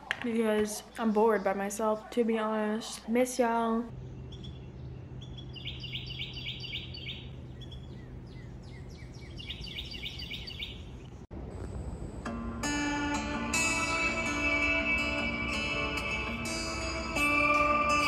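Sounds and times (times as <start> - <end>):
low outdoor rumble: 0.0 - 12.7
songbird trilling: 4.0 - 11.2.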